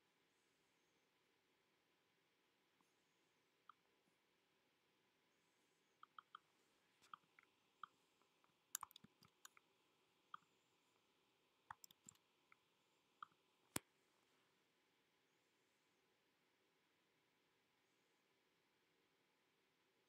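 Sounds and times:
computer mouse clicks: 6.0s - 9.7s, 11.7s - 12.6s.

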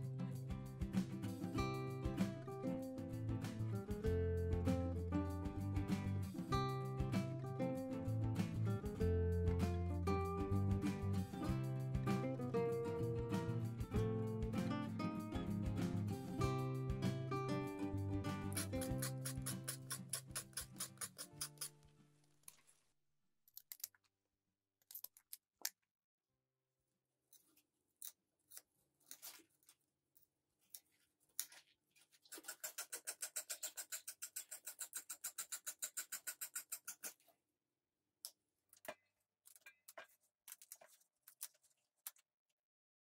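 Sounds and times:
knife cutting radish stems: 18.4s - 21.8s.

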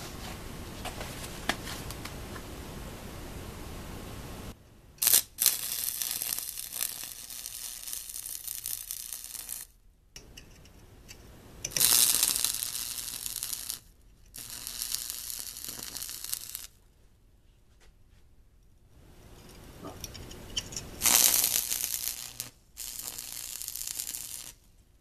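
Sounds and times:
welding arc crackling: 5.0s - 9.7s, 11.6s - 16.8s, 19.8s - 24.7s.

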